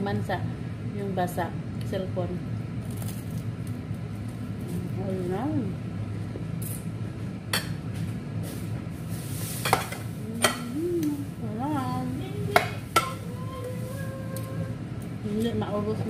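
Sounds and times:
steady low hum: 0.0 - 16.0
person humming through a mouthful: 10.2 - 11.4.

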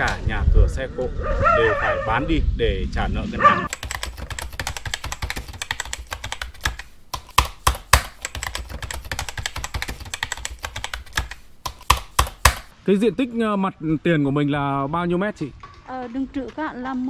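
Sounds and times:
rapid irregular clicking: 3.7 - 12.7.

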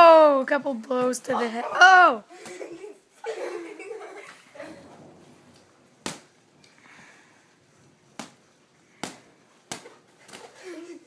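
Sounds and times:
boxing gloves punching: 8.2 - 8.4, 9.0 - 10.5.

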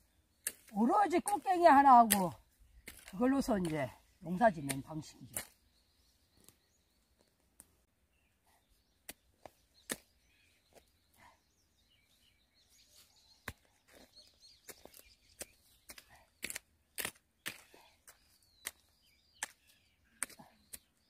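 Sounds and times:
hoe chopping into wet soil: 9.8 - 10.2.

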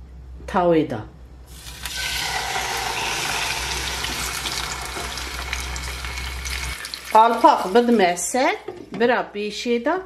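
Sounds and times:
chicken sizzling in hot oil: 1.5 - 8.7.

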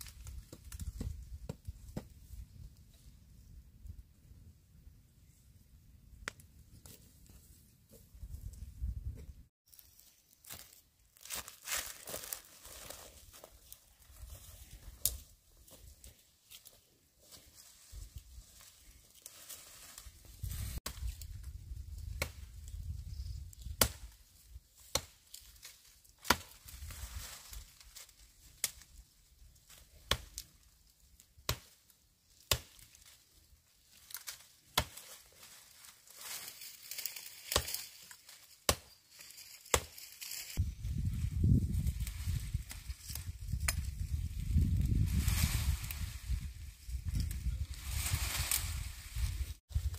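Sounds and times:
leaves and brush rustling: 9.6 - 49.9.

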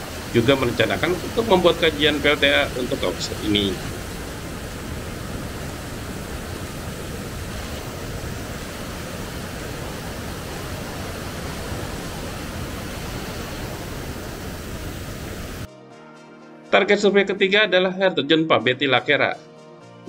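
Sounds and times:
waterfall rushing: 0.0 - 15.7.

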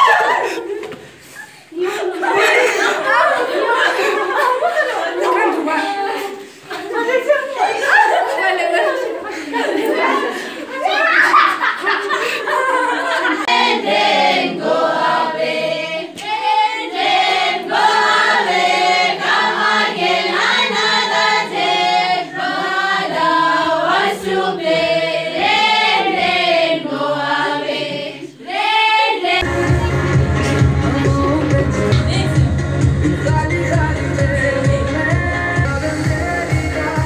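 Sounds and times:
women singing in chorus: 13.0 - 29.6
pop music with heavy bass: 29.4 - 37.0.

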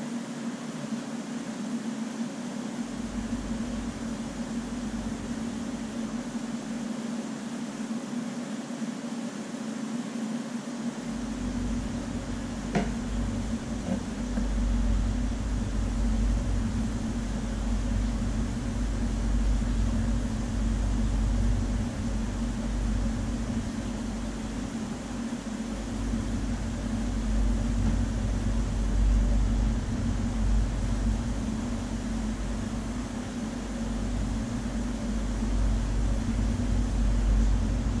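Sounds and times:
machine hum: 0.0 - 38.0
deep low rumble: 11.2 - 38.0.

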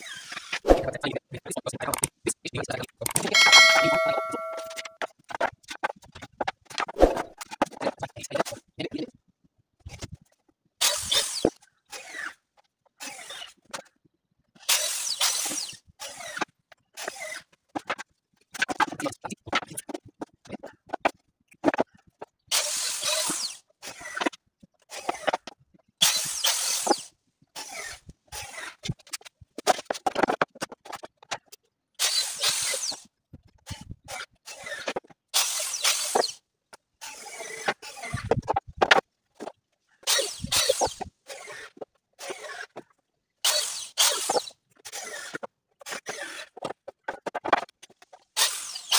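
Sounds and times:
wooden planks scraping and knocking: 44.0 - 48.3.

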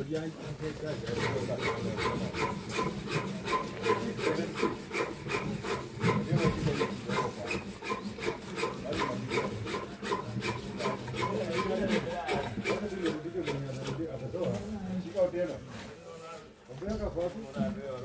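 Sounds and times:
hand tool rasping: 0.5 - 14.6.

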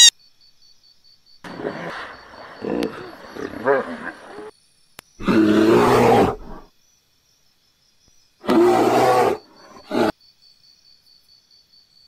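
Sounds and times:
hippopotamus calling: 1.5 - 4.5.

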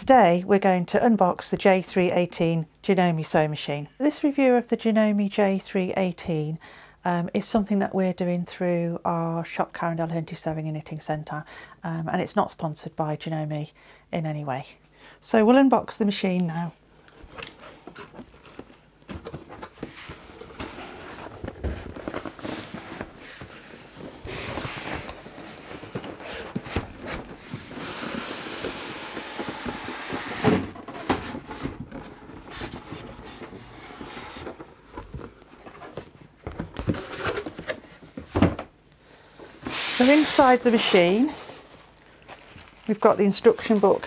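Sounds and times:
cardboard and plastic rustling: 17.1 - 38.7, 39.5 - 44.0.

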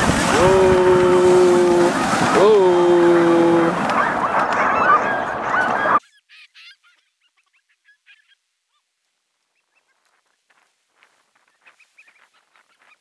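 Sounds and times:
loud rushing noise: 0.0 - 6.0
dogs yipping and whining: 3.1 - 8.8.

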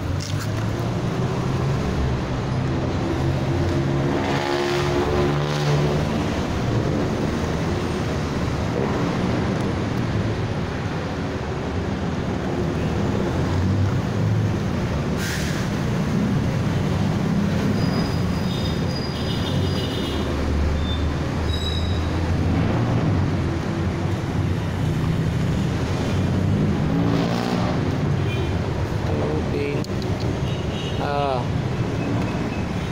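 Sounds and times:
low rumble of street traffic: 0.0 - 32.9.

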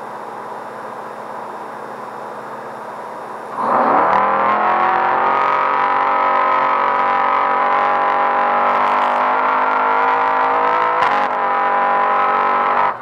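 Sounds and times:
engine running at high revs: 3.5 - 13.0.

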